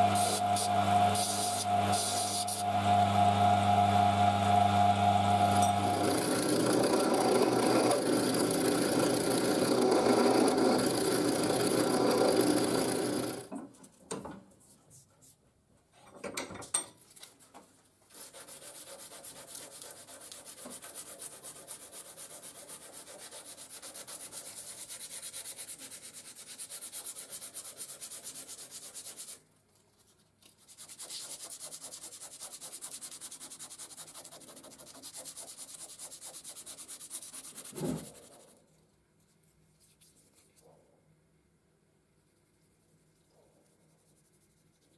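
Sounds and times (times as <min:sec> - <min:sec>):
sandpaper rubbing on wood: 0:00.2 - 0:02.6, 0:18.1 - 0:29.4, 0:30.6 - 0:38.6.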